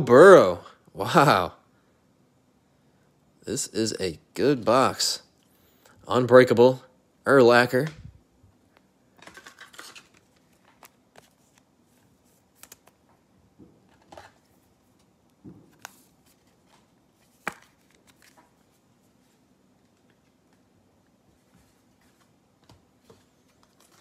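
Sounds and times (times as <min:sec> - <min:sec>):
trading cards sliding and flipping: 0:09.5 - 0:13.0, 0:15.7 - 0:20.4.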